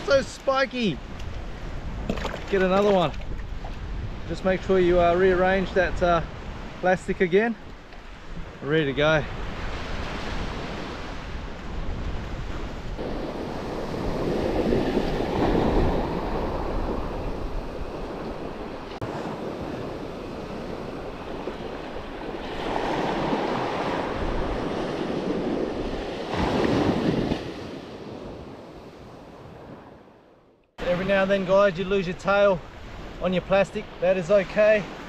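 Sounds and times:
wind buffeting the microphone: 0.0s - 30.0s
surf breaking on sandy beach: 9.4s - 28.7s.

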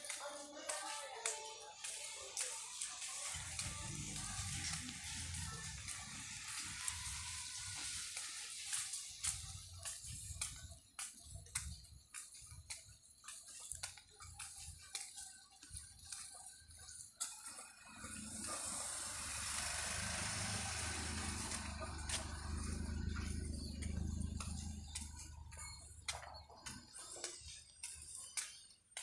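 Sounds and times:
rain pattering on umbrella: 2.8s - 9.9s.

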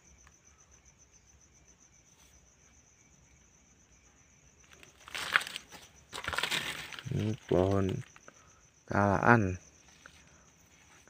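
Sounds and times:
cricket trilling: 0.0s - 11.0s
handling noise rustle: 4.7s - 8.3s.

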